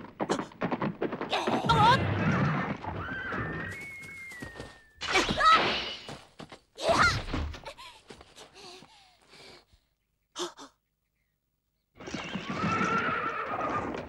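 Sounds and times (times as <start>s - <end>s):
horse whinnying: 1.4s - 4.6s, 12.0s - 14.0s.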